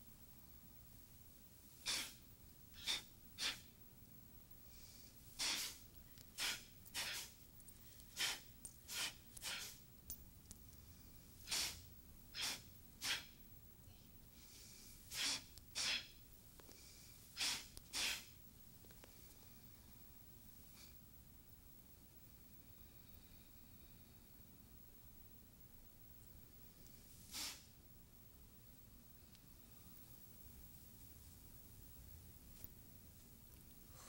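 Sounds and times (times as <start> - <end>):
short sharp breaths: 1.8 - 2.2, 14.4 - 16.1, 16.7 - 18.3.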